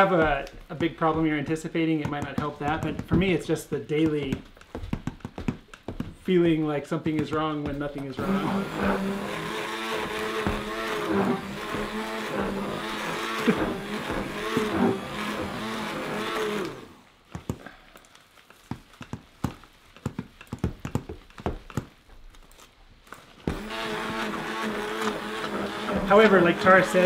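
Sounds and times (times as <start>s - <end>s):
stick blender motor running: 8.2s - 17.2s, 23.2s - 27.0s.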